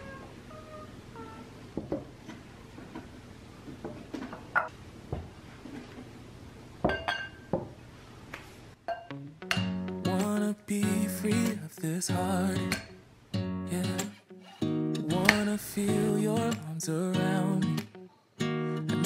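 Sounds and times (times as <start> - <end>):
ceramic cups and bowls clinking: 6.9 - 7.5.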